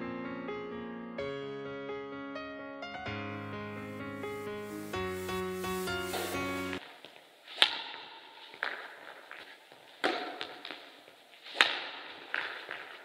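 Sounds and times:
piano music: 0.0s - 6.8s.

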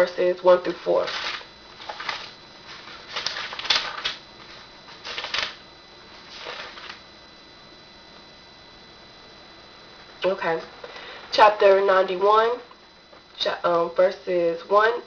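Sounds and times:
book pages turning: 0.7s - 5.6s, 6.2s - 7.0s.

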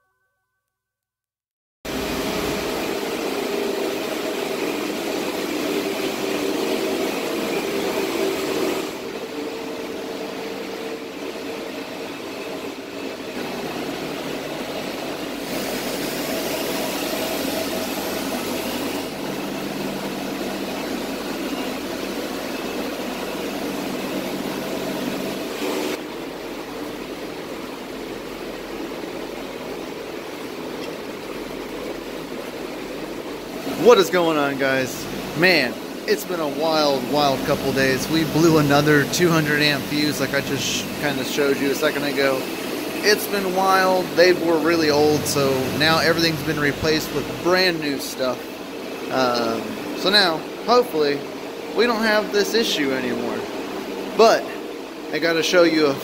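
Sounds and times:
cooling fans rushing air: 1.9s - 56.0s.

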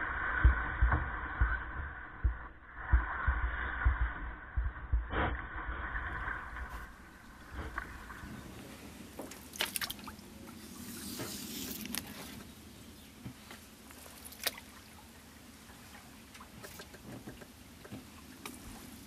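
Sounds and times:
low thumps: 0.0s - 9.2s
water gurgling around paddle: 2.9s - 12.6s, 13.2s - 19.0s
water splashes: 5.1s - 12.6s, 13.5s - 19.0s.

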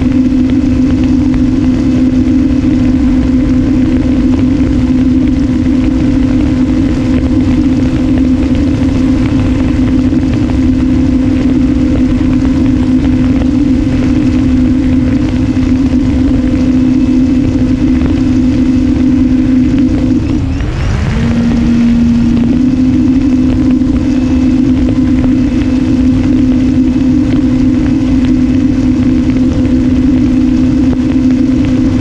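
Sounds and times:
electric motor and propeller hum: 0.0s - 32.0s
wind rushing: 0.0s - 32.0s.

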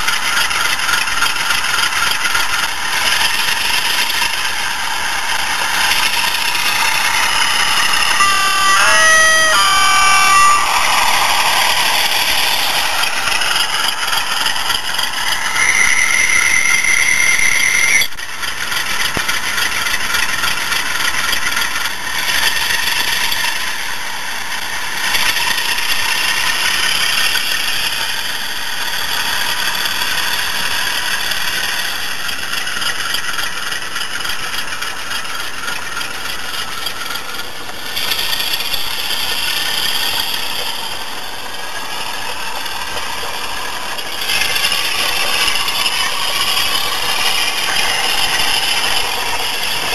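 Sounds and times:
diesel engine running: 0.0s - 49.9s
model train rattling on track: 0.0s - 49.9s
steady high whine: 2.5s - 18.2s.

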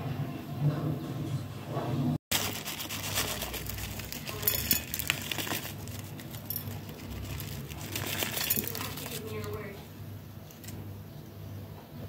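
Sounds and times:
crumbs rustling and clicking: 2.3s - 9.7s.

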